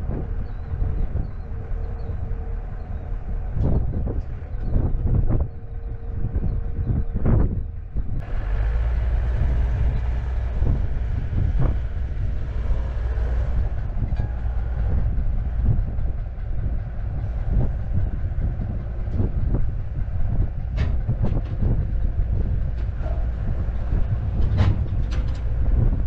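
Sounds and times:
diesel engine rumbling: 0.0s - 26.0s
metal clanks and knocks: 9.9s - 26.0s.

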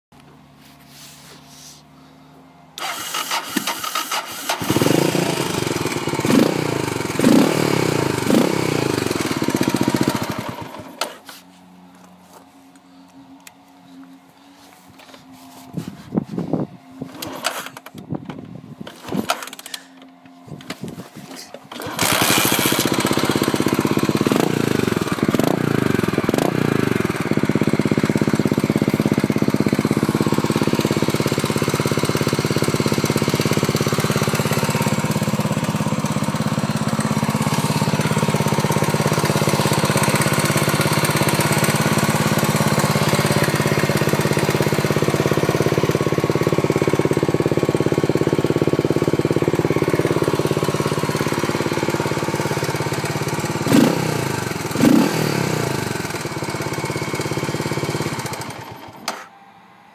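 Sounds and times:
motorcycle engine revving and idling: 2.6s - 11.2s, 21.6s - 59.2s.

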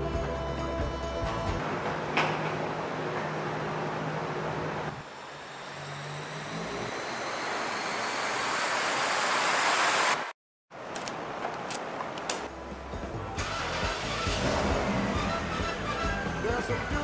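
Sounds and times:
white noise hiss riser: 4.0s - 10.3s.

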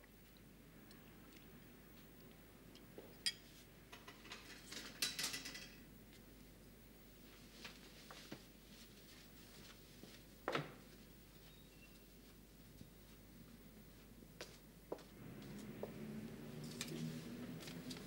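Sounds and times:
crockery and chair clatter: 3.9s - 5.8s.

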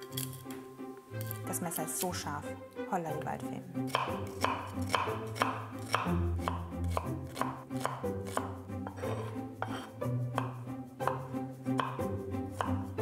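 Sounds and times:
background music: 0.0s - 13.0s
knife dicing on wooden board: 3.9s - 12.0s.

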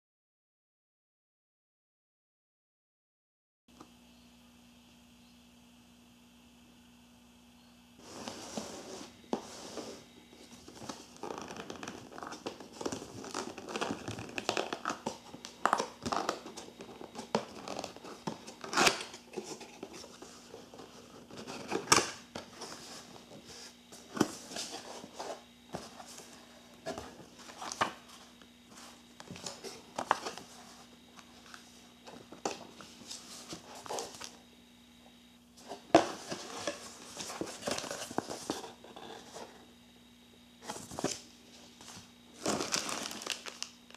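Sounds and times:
paper and plastic wrapping rustling: 9.8s - 28.0s, 41.8s - 43.9s
cardboard flaps scraping and tapping: 35.6s - 39.6s.

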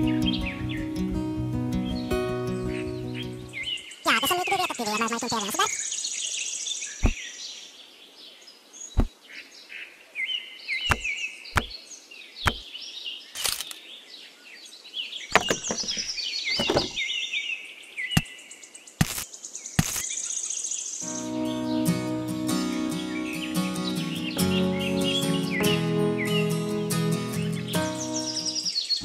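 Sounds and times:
small birds chirping: 0.0s - 1.1s, 1.7s - 29.0s
sharp knocks: 10.9s - 11.7s, 15.3s - 17.0s.

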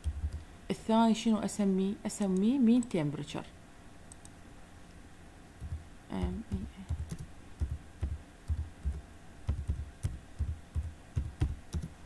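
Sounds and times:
computer keyboard typing: 5.6s - 12.0s.

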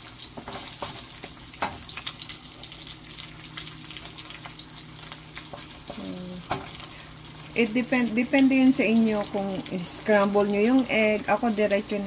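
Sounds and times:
egg sizzling in grease: 0.0s - 12.0s
wooden spatula stirring in pan: 0.2s - 2.1s, 5.4s - 6.8s.

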